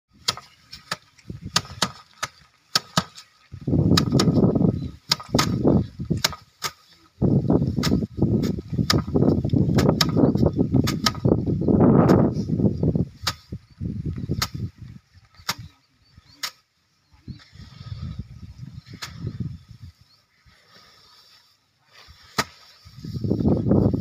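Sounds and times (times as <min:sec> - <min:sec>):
rice bundles cracking on wood: 0:00.2 - 0:04.4, 0:05.0 - 0:06.9.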